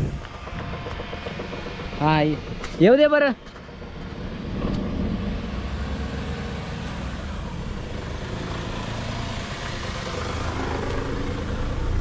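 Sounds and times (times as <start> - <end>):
car engine and tyre noise: 0.0 - 12.0.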